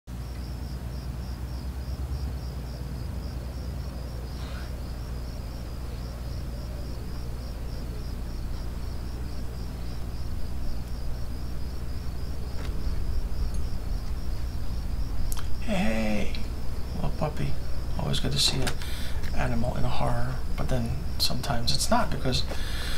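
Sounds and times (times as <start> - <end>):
rhythmic insect chirping: 0.1 - 22.9
low rumble: 2.1 - 18.1.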